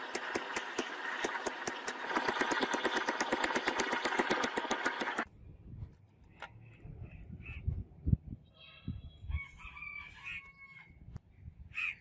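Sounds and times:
machine knocking rapidly: 0:00.0 - 0:05.3.

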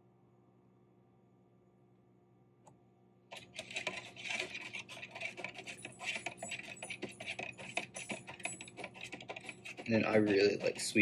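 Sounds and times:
metal spoon stirring in paper cup: 0:03.3 - 0:11.0.

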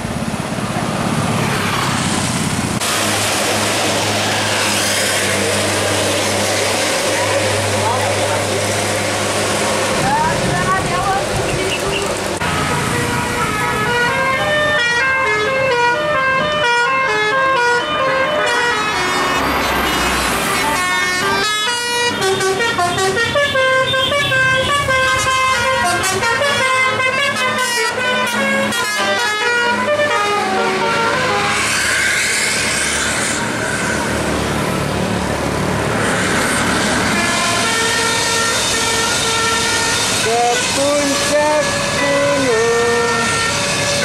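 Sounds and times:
bus passing by: 0:00.0 - 0:44.0
multi-tone bus horn melody: 0:11.4 - 0:33.4, 0:36.7 - 0:44.0.

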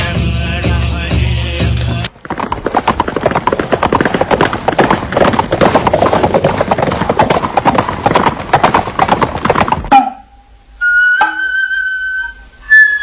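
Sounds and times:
galloping horse hoofbeats: 0:01.8 - 0:10.2.

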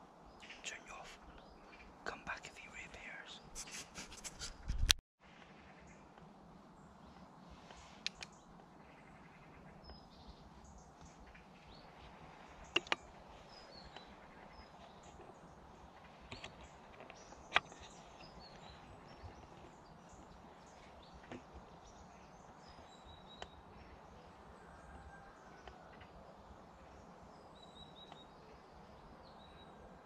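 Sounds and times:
faint woodland ambience: 0:00.0 - 0:30.0
sharp click: 0:12.7 - 0:13.0
soft ticks: 0:12.7 - 0:13.1.

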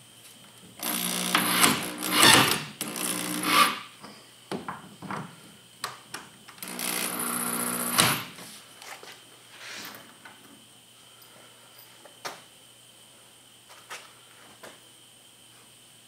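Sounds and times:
power drill against wood: 0:00.8 - 0:03.9, 0:06.6 - 0:08.4.

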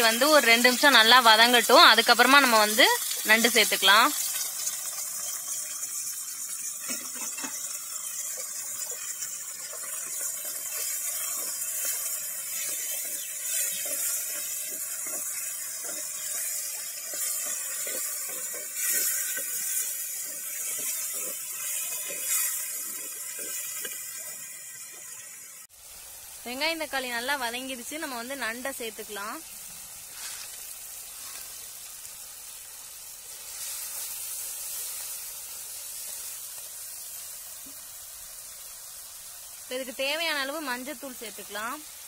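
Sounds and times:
vegetables sizzling in hot oil: 0:00.0 - 0:42.0
wooden spatula scraping and stirring: 0:08.9 - 0:24.1.

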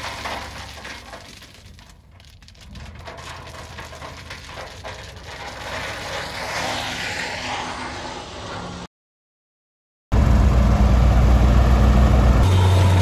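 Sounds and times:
diesel engine rumbling: 0:00.0 - 0:08.8, 0:10.1 - 0:13.0
rushing noise: 0:02.8 - 0:08.9.

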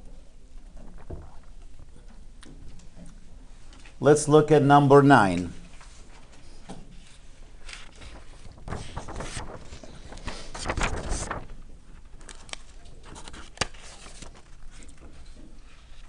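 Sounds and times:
paper rustling and sliding: 0:05.7 - 0:16.0.

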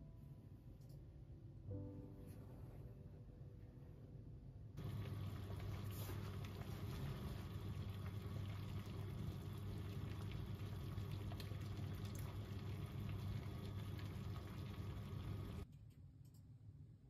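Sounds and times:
low hum: 0:00.0 - 0:15.7
water simmering in a pot: 0:04.8 - 0:15.6.

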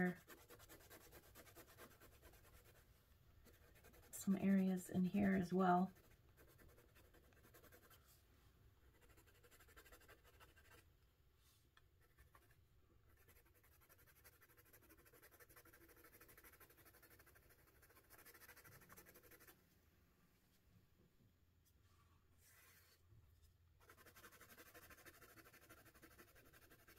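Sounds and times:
pencil scratching on paper: 0:00.0 - 0:02.8, 0:03.4 - 0:08.2, 0:08.9 - 0:10.8, 0:12.0 - 0:19.6, 0:23.8 - 0:26.9.

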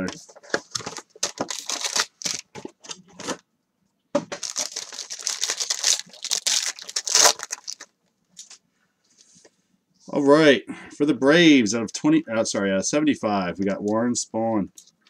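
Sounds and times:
plastic card sleeves crinkling: 0:00.0 - 0:03.3, 0:04.3 - 0:08.6.

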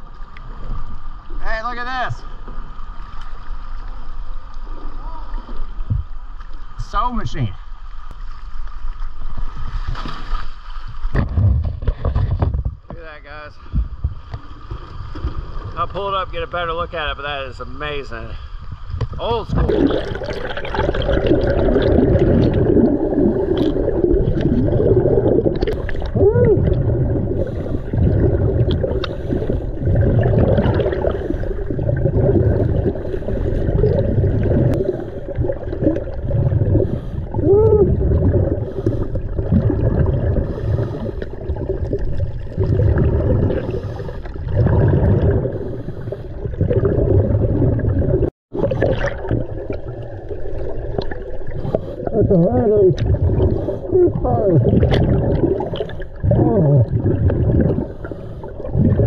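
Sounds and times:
underwater bubbles gurgling: 0:18.6 - 0:59.0.

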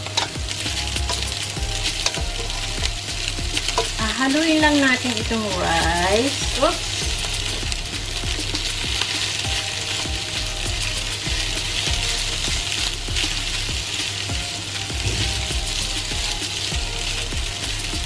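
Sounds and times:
rice sizzling in oil: 0:00.0 - 0:18.0.

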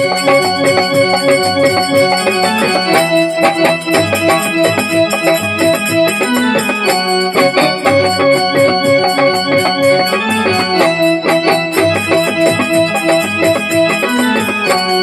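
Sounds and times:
dholak drum beat: 0:00.0 - 0:15.0
harmonium melody: 0:00.0 - 0:15.0.

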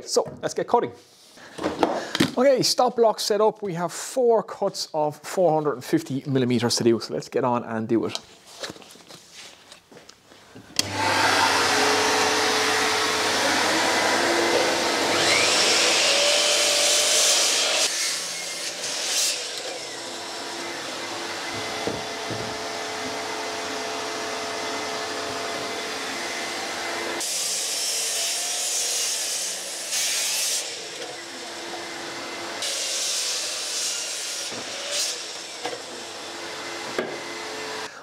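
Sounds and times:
mitre saw cutting wood: 0:10.8 - 0:37.9.

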